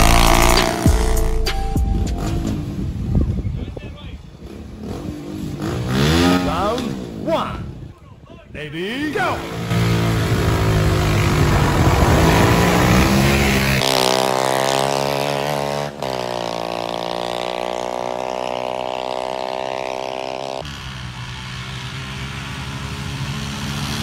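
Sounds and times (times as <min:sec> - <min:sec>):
pickup truck engine at full throttle: 0:00.0 - 0:01.6, 0:09.4 - 0:24.0
buggy engine at full throttle: 0:00.0 - 0:08.0, 0:09.0 - 0:24.0.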